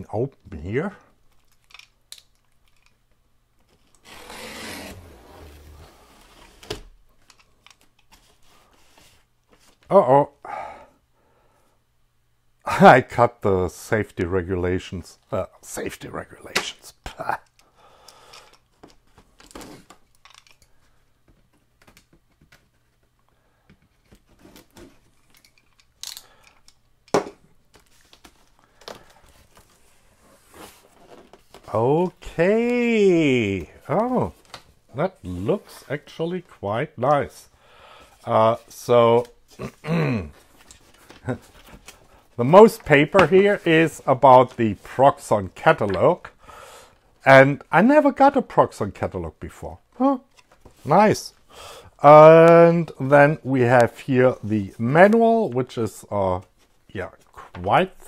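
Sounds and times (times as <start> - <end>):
cardboard scraping and rustling: 4.0 - 6.8, 29.4 - 31.7.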